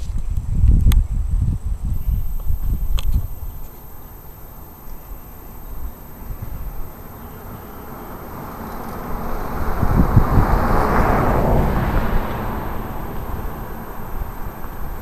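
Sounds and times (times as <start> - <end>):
car passing: 9.0 - 14.2.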